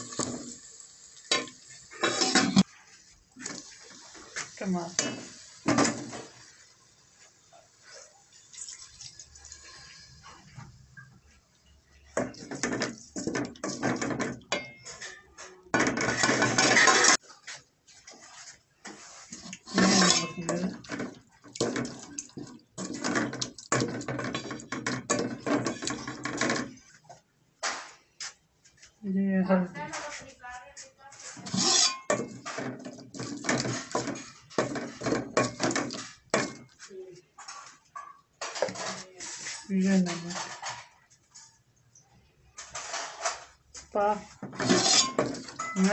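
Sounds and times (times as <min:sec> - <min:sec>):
wooden spoon scraping metal pot: 0:01.3 - 0:06.5, 0:12.0 - 0:26.9, 0:31.1 - 0:41.6, 0:42.6 - 0:45.9.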